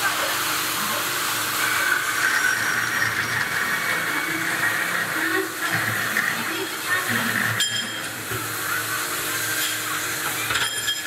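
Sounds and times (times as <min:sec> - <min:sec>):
cold saw cutting steel pipe: 0:00.8 - 0:08.2.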